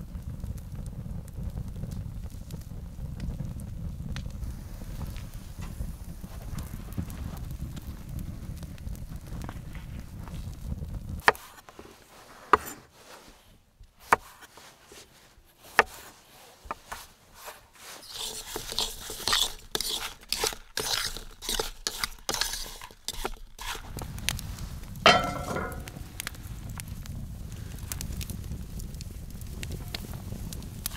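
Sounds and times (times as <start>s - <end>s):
wood fire rumbling: 0.0s - 13.6s, 16.8s - 30.9s
wind: 0.0s - 30.9s
skillet clanking onto metal grate: 25.1s - 26.0s
utensils clattering on cutting board: 25.1s - 26.0s.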